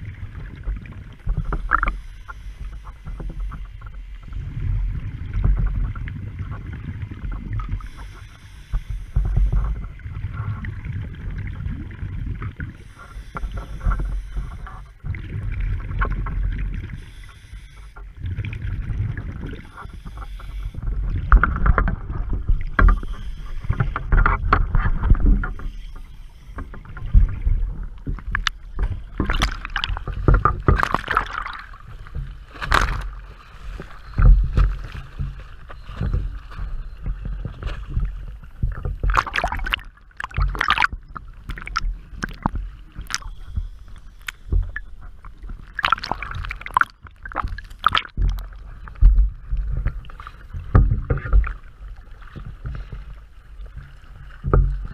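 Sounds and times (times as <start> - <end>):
exhaled bubbles rumbling: 0.0 - 2.2, 3.0 - 8.2, 9.0 - 17.1, 18.0 - 54.9
waves slapping hull: 0.0 - 54.9
water splashing: 18.2 - 54.9.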